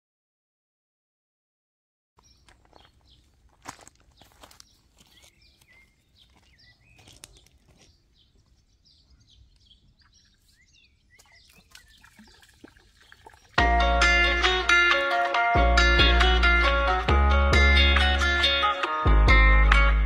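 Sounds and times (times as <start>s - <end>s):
footsteps on wooden deck: 2.2s - 10.6s
faint birds chirping: 2.2s - 13.6s.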